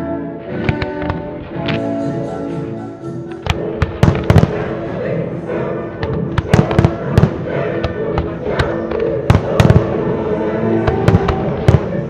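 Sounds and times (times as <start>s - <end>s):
music: 0.0s - 12.0s
firework shells bursting: 3.4s - 4.8s, 6.0s - 10.0s.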